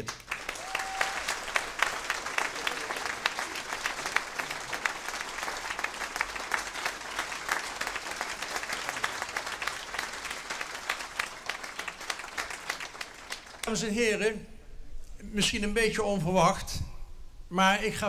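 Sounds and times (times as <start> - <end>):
crowd applauding: 0.0 - 13.9.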